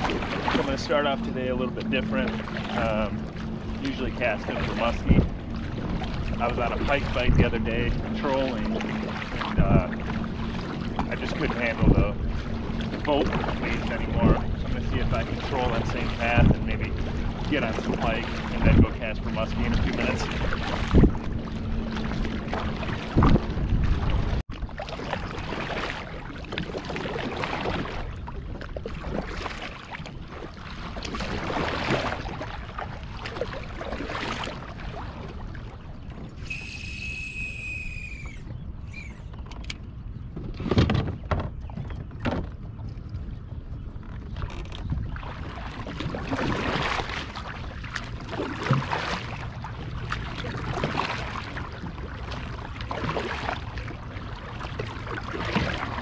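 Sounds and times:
kayak paddle strokes in water: 0.0 - 56.0
high whistling tone: 36.4 - 39.3.

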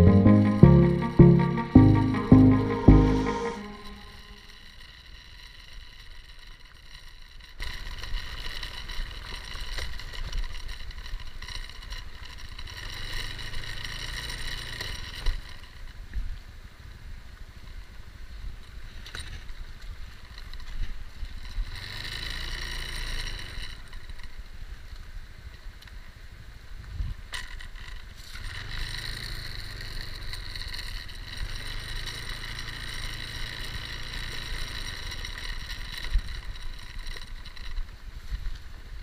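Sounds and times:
wind and road noise: 8.1 - 39.0
scooter engine running: 28.2 - 38.0.

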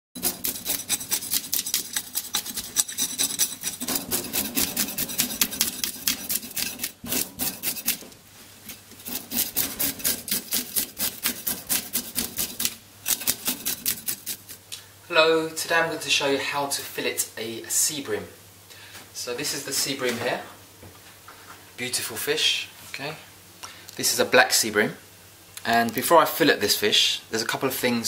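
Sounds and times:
knife scraping fish scales: 0.2 - 14.6.

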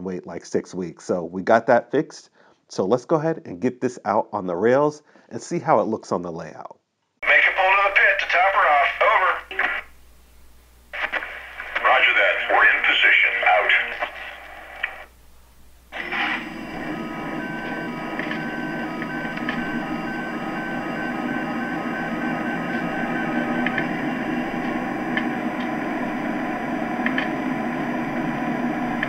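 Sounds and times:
two-tone beeping: 15.9 - 25.5.

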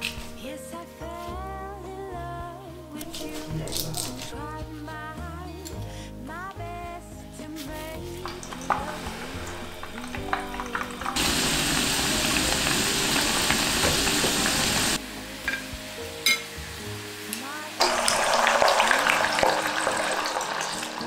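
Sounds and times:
soft background music: 0.0 - 21.0
deep-frying sizzle: 8.2 - 21.0.

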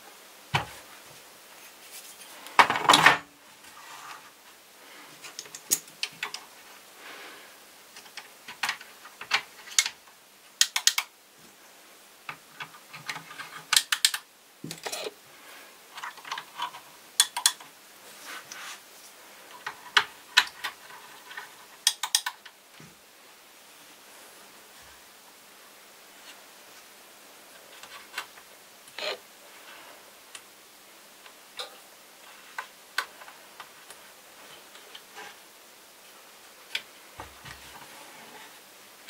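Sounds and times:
plastic parts clicking and rattling: 7.9 - 11.1, 12.3 - 15.1, 16.0 - 17.7, 19.5 - 22.6.

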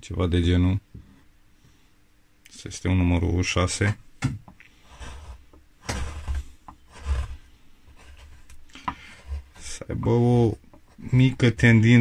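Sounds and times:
carving gouge scraping wood: 4.7 - 12.0.

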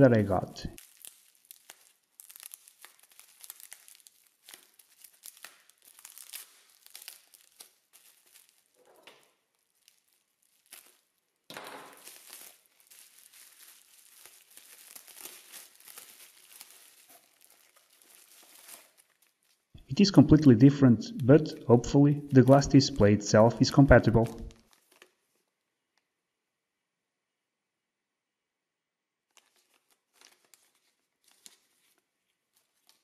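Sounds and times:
bubble wrap crinkling: 0.0 - 19.9, 23.5 - 26.1, 29.2 - 33.0.

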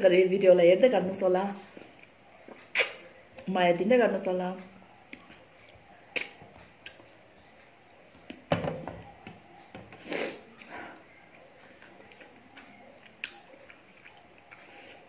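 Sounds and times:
chewing mouth sounds: 1.8 - 3.5, 10.4 - 15.0.

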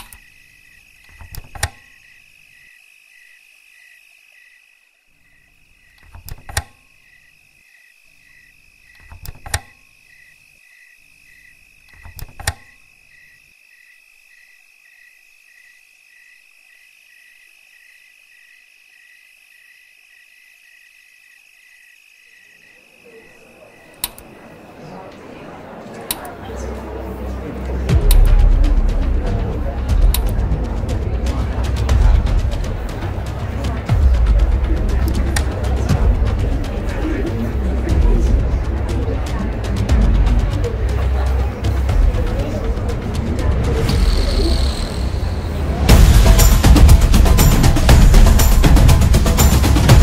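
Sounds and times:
night insects chirping: 0.0 - 50.0
steady high-pitched drone: 42.4 - 50.0.

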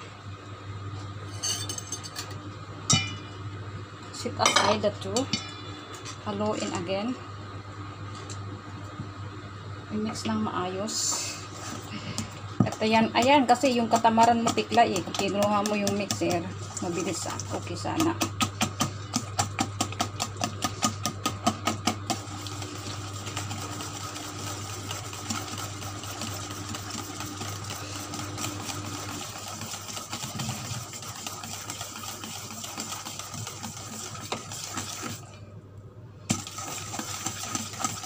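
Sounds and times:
whisk beating dough in metal bowl: 11.6 - 35.4, 36.3 - 38.0.

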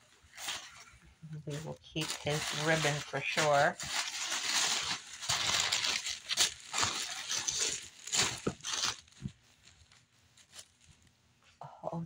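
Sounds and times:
tissue paper rustling: 0.0 - 11.2.

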